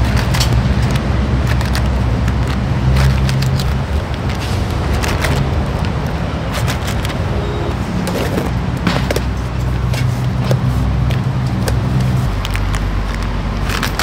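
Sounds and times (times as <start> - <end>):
plastic packets crinkling: 0.1 - 7.3.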